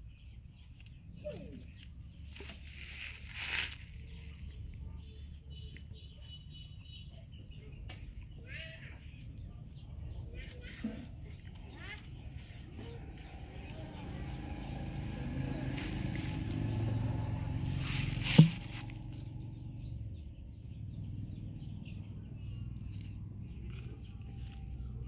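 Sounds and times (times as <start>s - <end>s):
vehicle engine hum: 0.0s - 25.0s
sharp thump: 18.2s - 18.9s.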